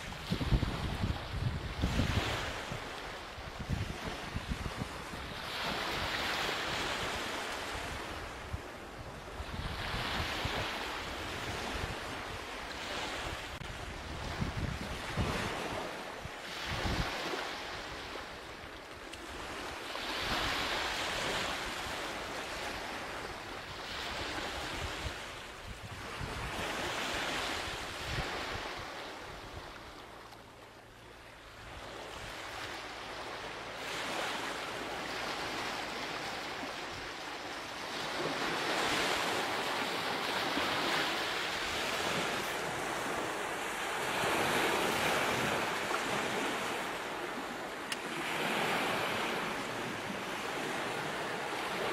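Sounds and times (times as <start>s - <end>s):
ocean waves washing in: 30.8s - 51.9s.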